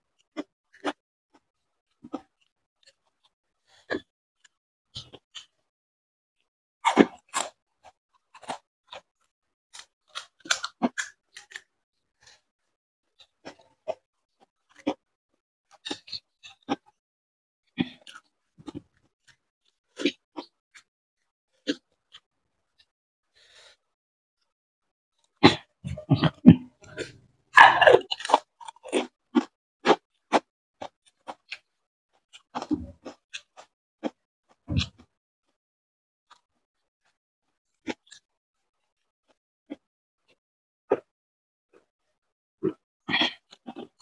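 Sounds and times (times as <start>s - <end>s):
person crunching and chewing food: 6.8s - 11.7s, 13.2s - 15.0s, 15.7s - 17.0s, 17.8s - 20.9s, 25.5s - 35.0s, 42.6s - 44.0s.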